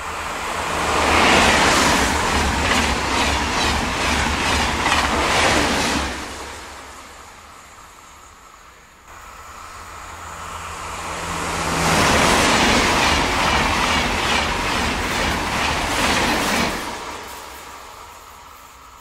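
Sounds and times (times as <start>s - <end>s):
high-speed train passing: 0.0s - 19.0s
train bogies clattering: 1.5s - 6.2s.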